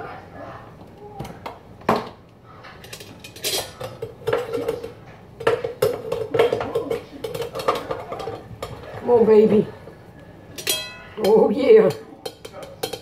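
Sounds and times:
utensil scraping metal plates: 0:02.6 - 0:09.8.

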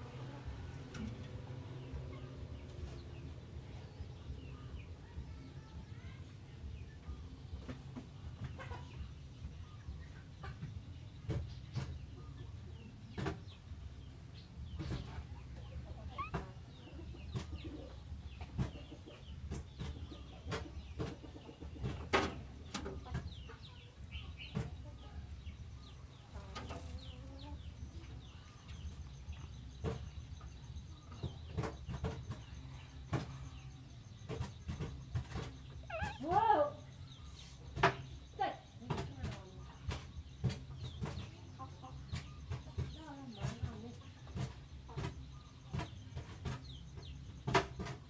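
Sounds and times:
bird calls and clicks: 0:14.8 - 0:48.0
loud wavering bird call: 0:35.8 - 0:36.4.

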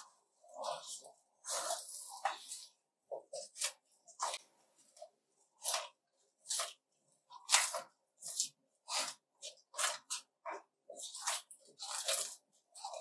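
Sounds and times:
wet crunching chewing: 0:05.6 - 0:13.0.

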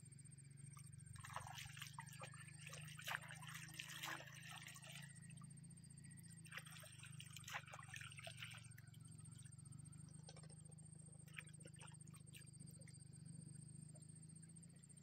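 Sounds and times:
steady low hum: 0:00.0 - 0:15.0
water splashing and dripping: 0:01.2 - 0:05.2, 0:06.4 - 0:09.4.

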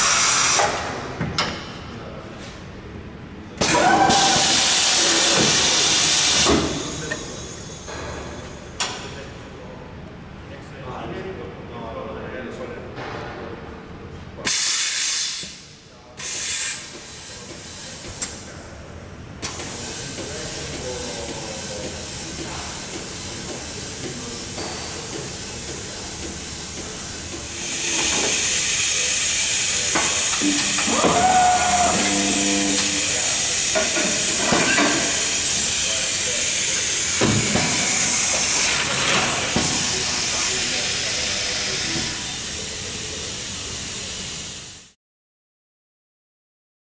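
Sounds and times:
compressed air hissing: 0:04.1 - 0:07.9, 0:14.5 - 0:15.6, 0:16.2 - 0:18.0, 0:26.4 - 0:44.9
short machine whine: 0:27.6 - 0:37.2.

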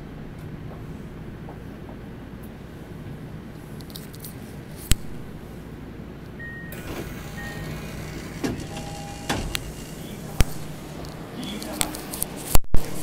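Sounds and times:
subway train rumble and hum: 0:00.0 - 0:03.8, 0:05.4 - 0:13.0
short high beeps: 0:06.4 - 0:09.9.

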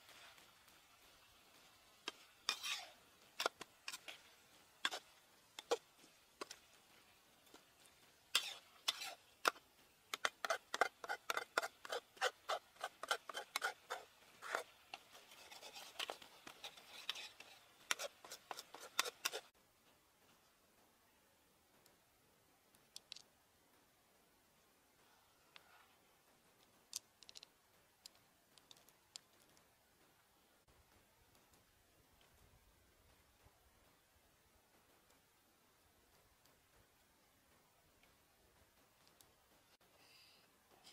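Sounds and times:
metal spatula scraping wok: 0:02.1 - 0:05.8, 0:08.3 - 0:09.6, 0:10.2 - 0:19.5.

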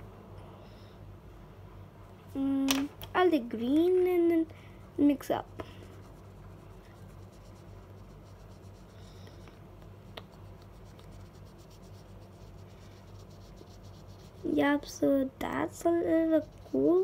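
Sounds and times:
steady low hum: 0:00.0 - 0:17.0
marker scratching on velvet paper: 0:05.0 - 0:09.3, 0:10.2 - 0:14.8, 0:16.1 - 0:17.0.

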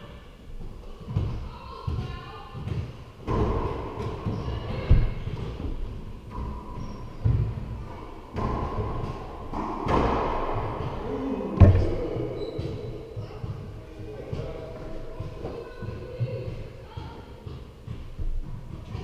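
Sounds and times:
sneakers squeaking on hardwood: 0:06.6 - 0:07.7, 0:11.6 - 0:13.8
racquetball hits echoing: 0:08.3 - 0:14.5.

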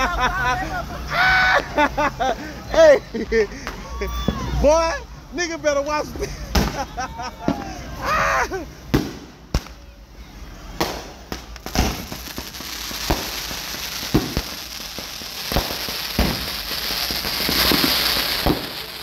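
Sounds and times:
fountain firework hissing: 0:00.0 - 0:19.0
fireworks sharp bangs: 0:06.1 - 0:07.7, 0:08.8 - 0:09.9, 0:10.7 - 0:19.0.

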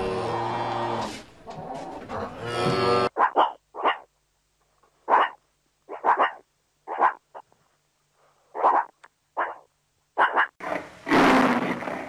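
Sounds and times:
meerkat barking calls: 0:03.0 - 0:04.1, 0:05.1 - 0:07.5, 0:08.5 - 0:10.6.

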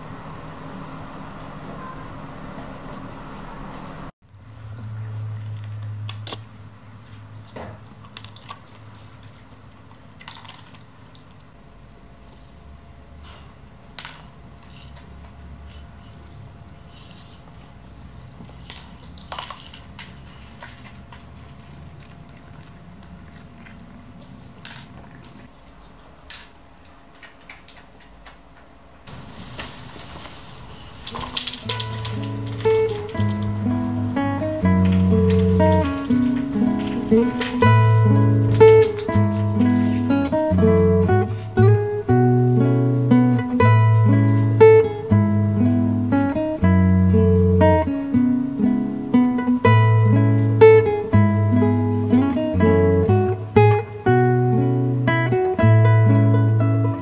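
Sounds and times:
cat crunching dry treats: 0:07.0 - 0:11.5, 0:16.8 - 0:40.2
kibble rattling in plastic cups: 0:18.5 - 0:21.8, 0:29.4 - 0:33.7.

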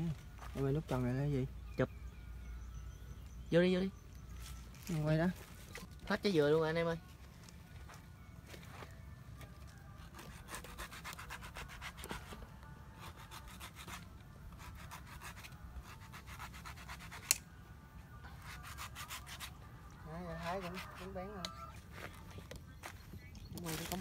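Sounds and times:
knife scraping coconut husk: 0:10.1 - 0:17.5, 0:18.3 - 0:19.6, 0:20.3 - 0:21.2.

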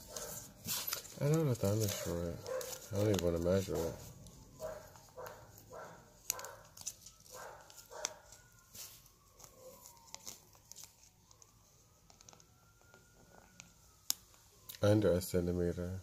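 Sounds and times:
paper strip rustling against fingernails: 0:00.0 - 0:12.5
faint siren wailing: 0:00.0 - 0:16.0
dog barking: 0:00.1 - 0:00.4, 0:02.0 - 0:02.8, 0:04.6 - 0:06.7, 0:07.3 - 0:08.3.

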